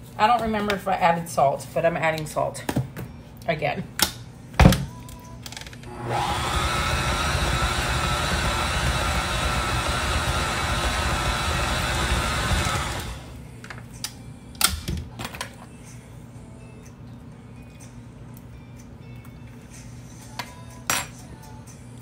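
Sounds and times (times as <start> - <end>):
stand mixer motor running: 5.9 - 13.3.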